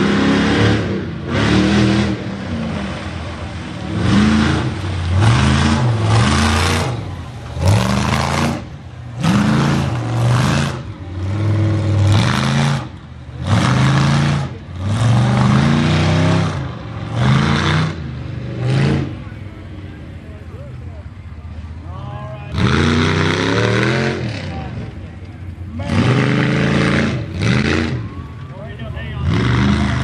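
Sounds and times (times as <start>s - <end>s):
truck engine revving: 0.0s - 30.0s.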